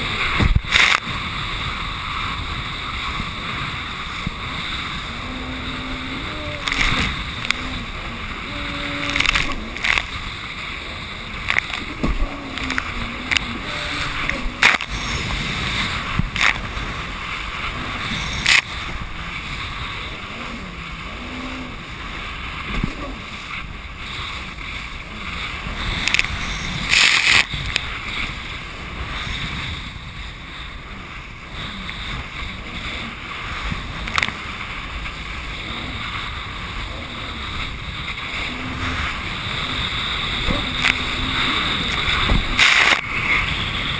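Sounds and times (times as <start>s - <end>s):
hull slapping waves: 0.0s - 43.9s
jet ski engine and water rush: 0.0s - 43.9s.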